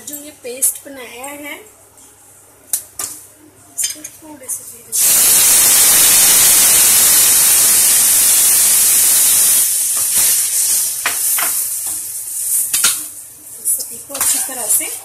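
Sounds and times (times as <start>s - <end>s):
paste sizzling in hot oil: 5.0s - 13.0s.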